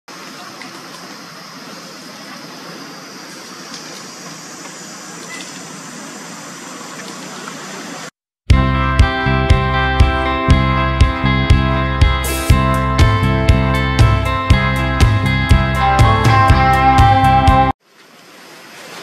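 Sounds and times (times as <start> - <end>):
outdoor background hiss: 0.1 - 8.1, 17.8 - 19.0.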